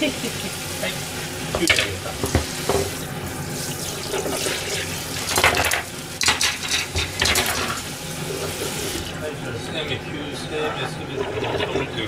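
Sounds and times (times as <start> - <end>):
water running at a sink: 0.0 - 12.0
cutting board knocking against sink: 1.5 - 3.0.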